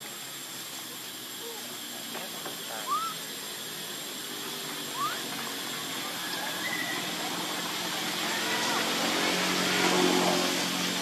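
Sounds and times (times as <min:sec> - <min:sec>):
baby monkey squeaking: 0:02.8 - 0:03.2, 0:05.0 - 0:05.2.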